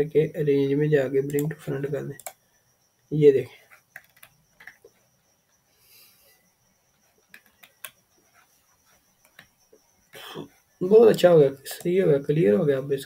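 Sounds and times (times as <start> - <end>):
computer mouse clicks: 1.2 - 2.4, 3.7 - 5.0, 7.2 - 8.0, 9.2 - 9.5.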